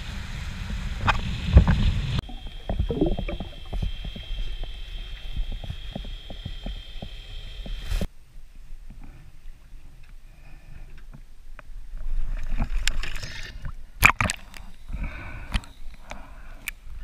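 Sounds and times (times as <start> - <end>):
water splashing and sloshing: 1.0 - 8.1, 11.1 - 15.0.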